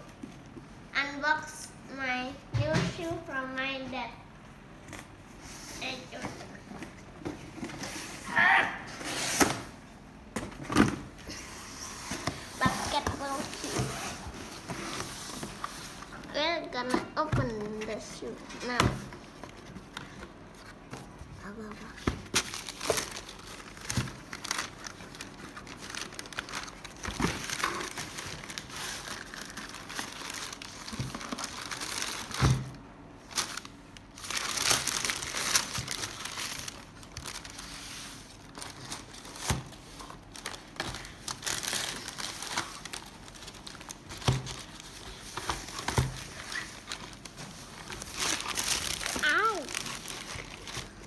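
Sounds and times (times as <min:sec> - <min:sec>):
tissue paper crinkling: 0:21.6 - 0:32.4, 0:33.2 - 0:51.0.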